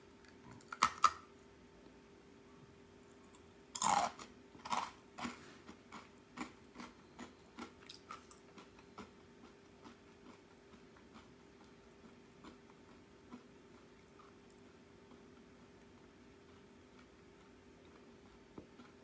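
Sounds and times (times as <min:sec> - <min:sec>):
rice cracker crunching: 0:03.8 - 0:06.9.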